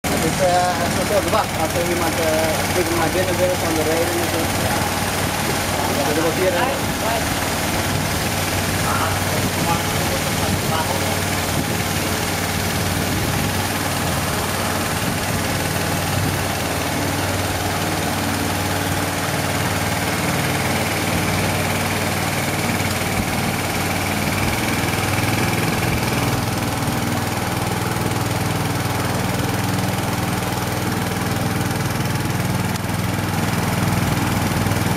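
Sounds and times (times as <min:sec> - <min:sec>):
small boat engine running: 0:00.0 - 0:34.9.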